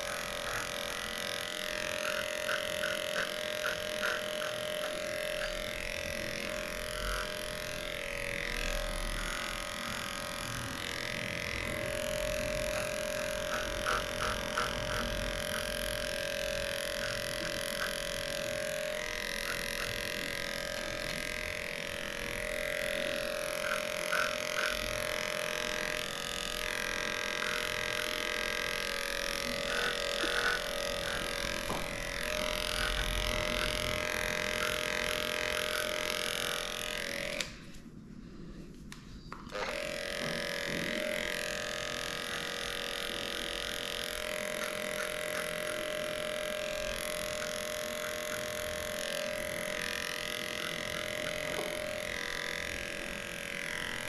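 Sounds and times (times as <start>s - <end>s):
electric clippers buzzing: 0.0s - 54.0s.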